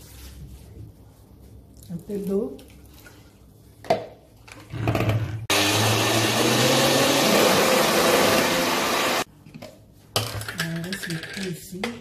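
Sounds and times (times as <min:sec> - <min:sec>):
blender motor whirring: 0:04.8 - 0:09.3.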